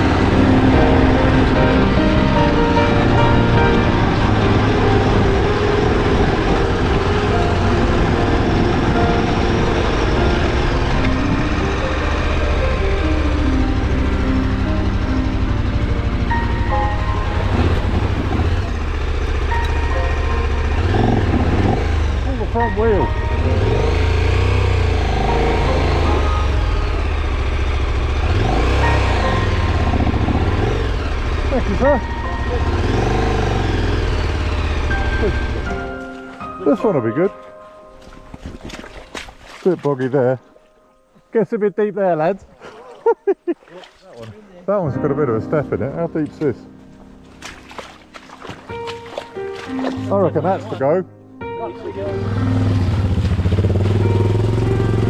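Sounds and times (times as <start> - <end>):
motorcycle engine running: 0.0 - 37.0, 51.9 - 55.0
wind and riding noise: 0.0 - 44.6, 46.6 - 55.0
wind noise on microphone: 5.0 - 11.5.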